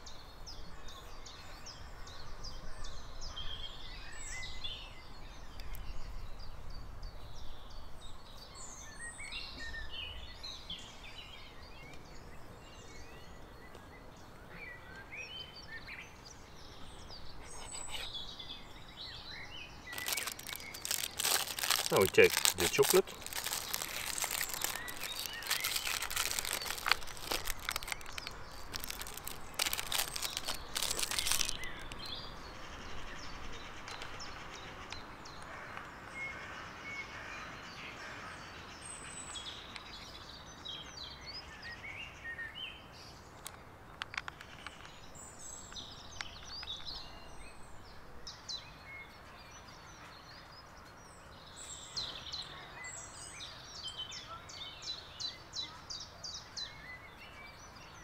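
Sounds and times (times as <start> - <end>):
birds chirping: 7.3 - 58.0
packaging crinkling and tearing: 19.9 - 32.1.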